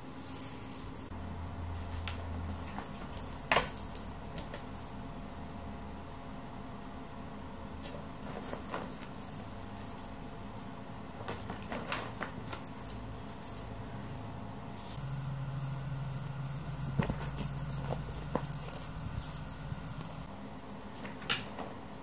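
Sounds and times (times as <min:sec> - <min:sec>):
low steady hum: 0:00.0 - 0:20.6
feather toy rustling on rug: 0:14.8 - 0:20.3.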